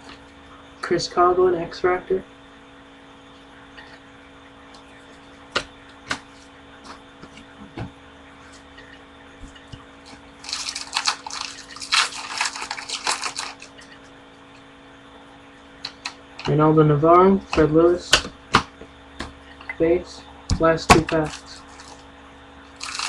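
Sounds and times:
wrapper crinkling and tearing: 10.4s - 13.8s, 21.1s - 22.0s, 22.8s - 23.0s.

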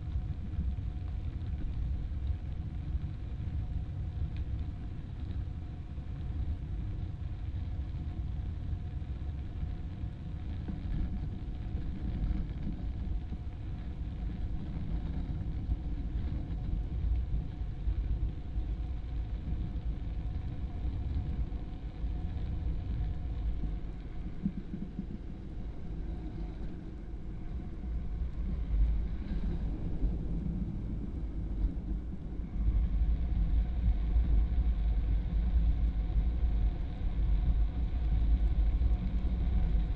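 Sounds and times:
wind on microphone: 0.0s - 39.9s.

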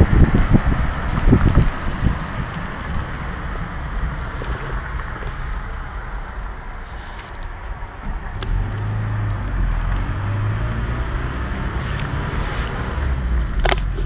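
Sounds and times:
road noise: 0.0s - 14.0s
car engine running: 0.1s - 7.0s, 7.7s - 14.0s.

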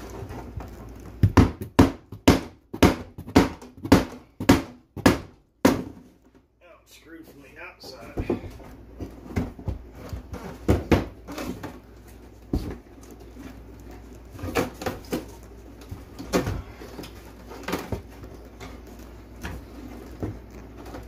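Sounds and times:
wooden knocks and creaks: 7.9s - 11.9s.

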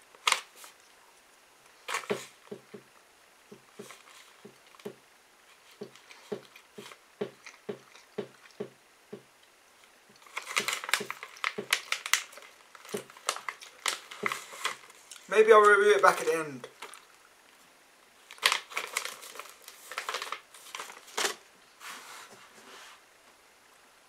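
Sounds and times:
plastic pouch crinkling: 1.8s - 2.6s, 10.1s - 17.2s, 18.2s - 21.4s
person chewing: 5.8s - 8.7s.

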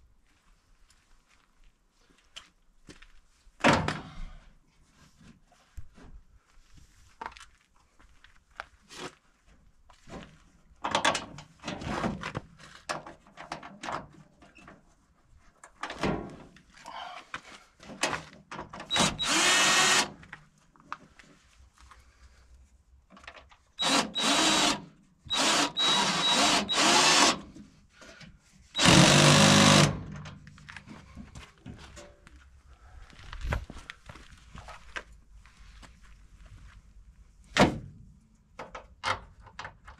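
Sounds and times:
cordless drill whining: 18.9s - 20.2s, 23.8s - 27.5s, 28.8s - 30.1s.

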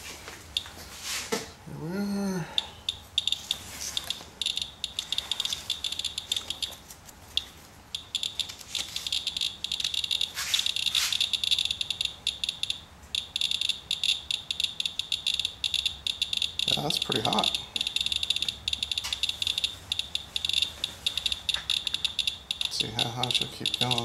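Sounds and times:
geiger counter chirping: 2.6s - 6.8s, 7.4s - 24.0s
rustling of handling: 5.0s - 11.3s.

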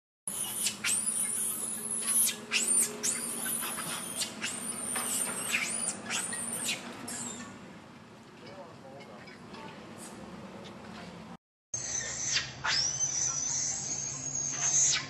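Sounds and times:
baby monkey screaming: 0.3s - 7.5s, 11.8s - 15.0s.

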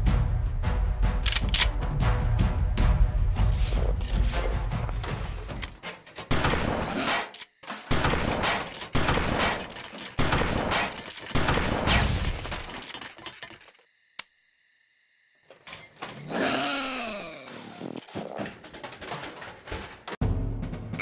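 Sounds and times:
shotgun blasts: 6.3s - 7.2s, 7.8s - 12.5s.

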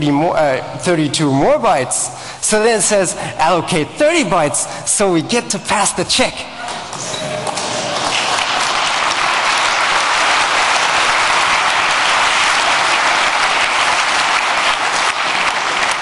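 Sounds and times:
audience applauding: 6.6s - 16.0s.

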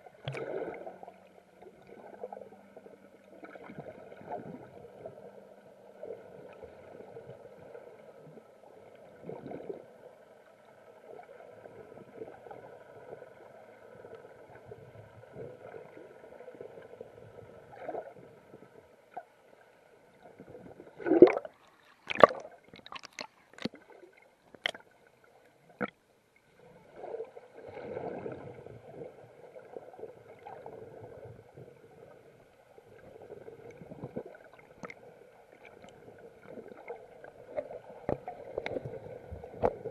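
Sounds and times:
underwater wash of water: 0.0s - 25.0s, 26.5s - 39.9s
sharp underwater clicks and knocks: 21.2s - 23.8s, 24.5s - 24.8s.

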